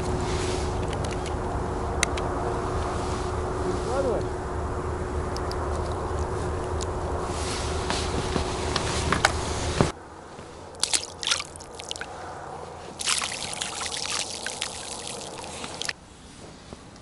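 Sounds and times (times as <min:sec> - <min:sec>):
steady rushing noise: 0:00.0 - 0:16.0
grain pattering on water: 0:10.7 - 0:12.1, 0:12.9 - 0:16.0.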